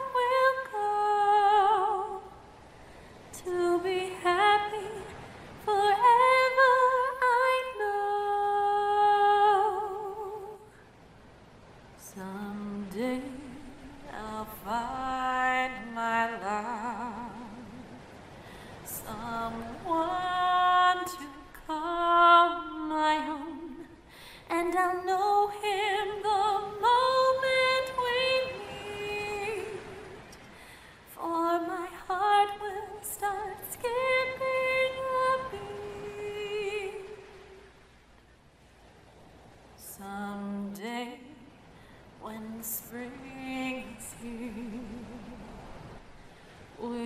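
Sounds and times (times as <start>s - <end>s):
woman singing unaccompanied: 0.0s - 2.6s, 3.3s - 10.8s, 12.0s - 18.1s, 18.7s - 37.8s, 39.8s - 45.9s, 46.8s - 47.0s
woman breathing: 18.4s - 18.9s, 24.1s - 24.5s, 30.5s - 31.1s, 41.7s - 42.2s.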